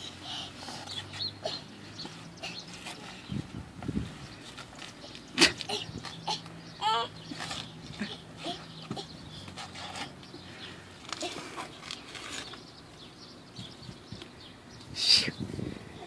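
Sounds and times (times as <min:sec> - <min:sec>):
toddler crawling on concrete: 0:00.0 - 0:13.1
scrape on concrete: 0:09.5 - 0:10.2, 0:11.0 - 0:12.6.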